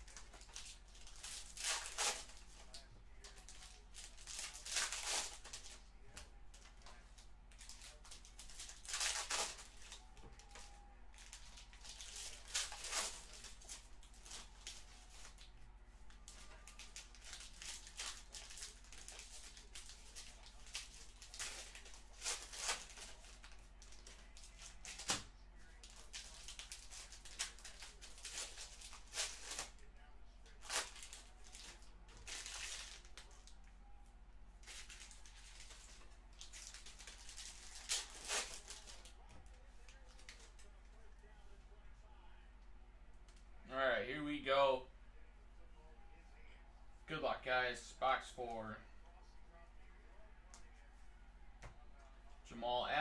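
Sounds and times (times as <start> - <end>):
packaging tearing and crinkling: 0.0 - 5.8, 7.5 - 10.6, 11.2 - 15.5, 16.3 - 29.9, 30.6 - 33.4, 34.6 - 39.1.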